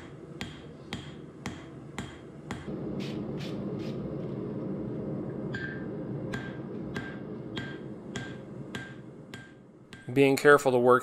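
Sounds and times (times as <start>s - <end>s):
hammer striking metal on anvil: 0.0s - 2.7s, 5.5s - 10.2s.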